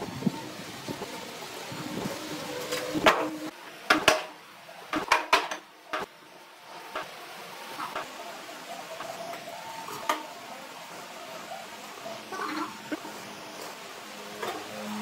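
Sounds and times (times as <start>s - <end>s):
wooden boards clattering on workbench: 3.0s - 4.3s.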